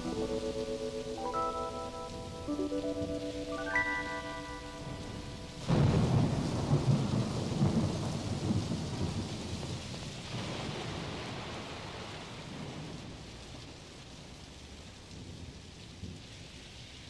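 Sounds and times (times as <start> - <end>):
steady falling rain: 0.0 - 17.0
thunderclap rolling: 4.8 - 13.3.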